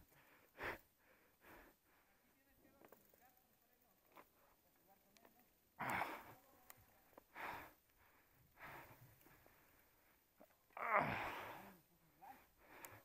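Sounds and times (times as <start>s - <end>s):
person groaning: 10.8s - 11.6s.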